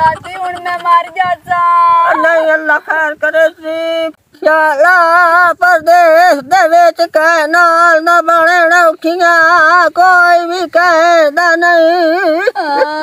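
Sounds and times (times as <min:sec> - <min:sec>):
high voice wailing a lament: 0:00.0 - 0:05.4, 0:09.2 - 0:13.0.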